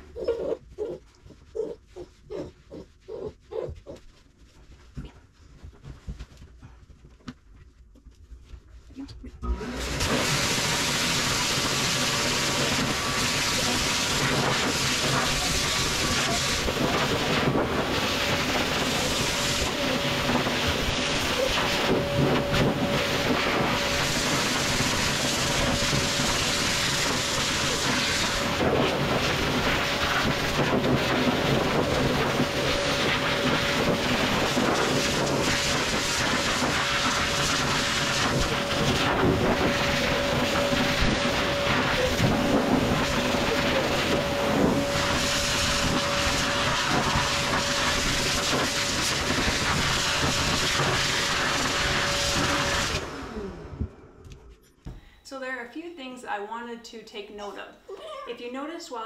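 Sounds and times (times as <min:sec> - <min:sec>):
blow dryer rushing air: 0:09.4 - 0:54.2.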